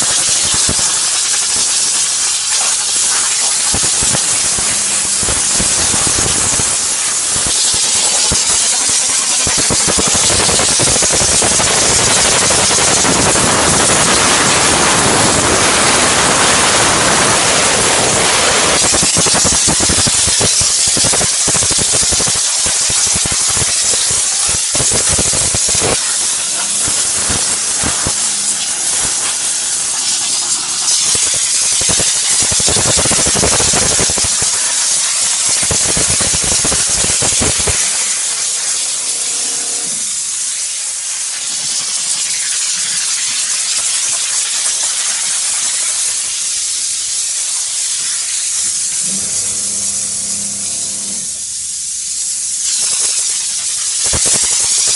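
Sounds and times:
steam jet hissing: 0.0s - 54.9s
low rumble: 49.0s - 51.6s.

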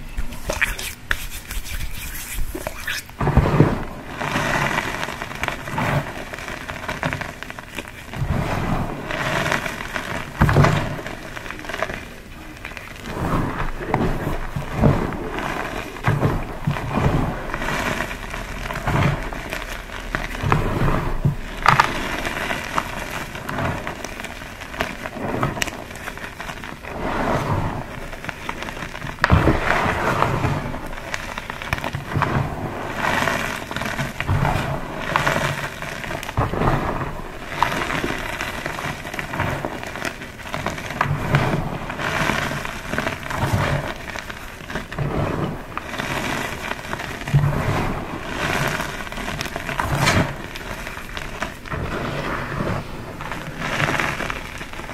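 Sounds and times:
chalk crunching and crumbling: 0.0s - 3.3s
sharp crack: 28.3s - 52.4s.

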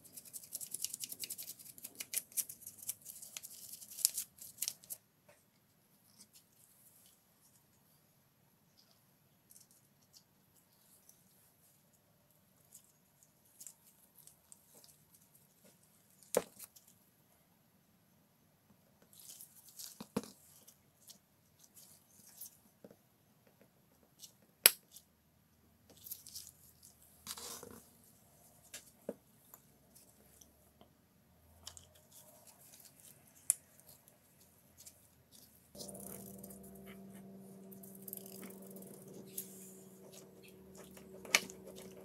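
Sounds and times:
gloved hands clicking and rustling: 0.1s - 5.0s, 37.8s - 42.0s
low hum with pitched tones: 35.8s - 42.0s.

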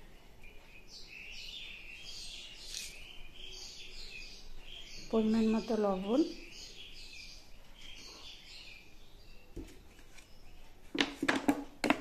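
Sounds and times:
small birds chirping faintly: 0.0s - 12.0s
clicks and knocks on a table: 10.9s - 12.0s.

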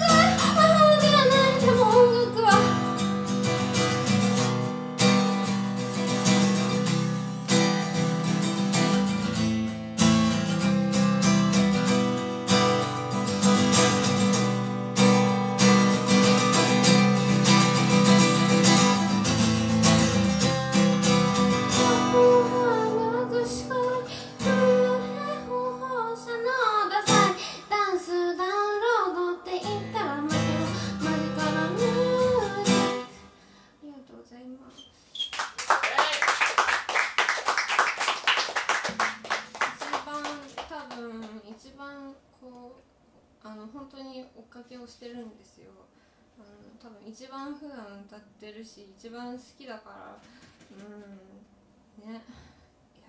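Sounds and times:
woman singing: 0.0s - 3.0s, 21.6s - 33.2s, 39.6s - 42.8s
acoustic guitar strumming: 0.0s - 26.2s, 29.6s - 33.2s.

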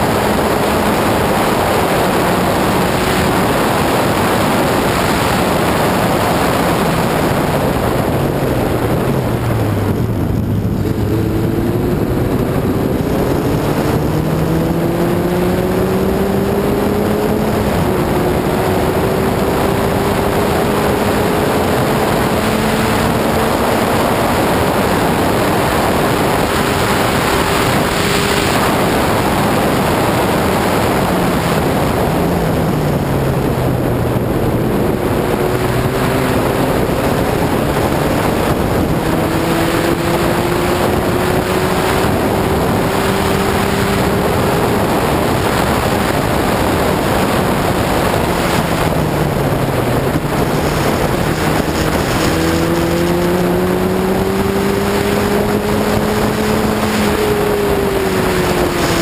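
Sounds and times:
race car engine revving: 0.0s - 59.0s
wind rush: 0.0s - 59.0s.

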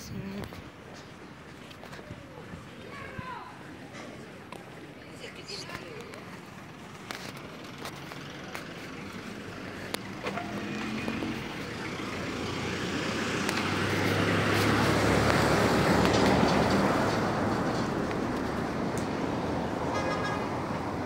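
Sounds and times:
vehicle passing by: 7.4s - 21.0s.

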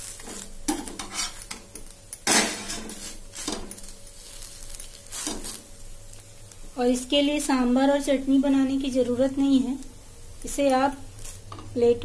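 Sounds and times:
faint sizzle: 0.0s - 12.0s
spatula scraping metal griddle: 0.2s - 1.6s, 2.2s - 5.6s.

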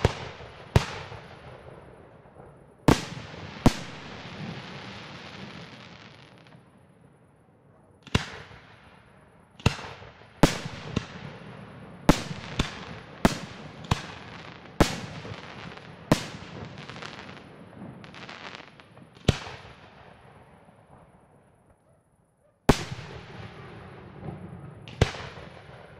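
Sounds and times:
firework crackling: 0.0s - 6.8s, 8.1s - 20.0s.

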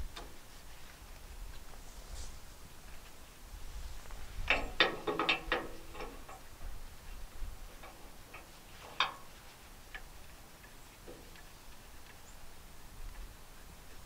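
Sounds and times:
metal hitch hardware clanking: 4.4s - 6.5s.

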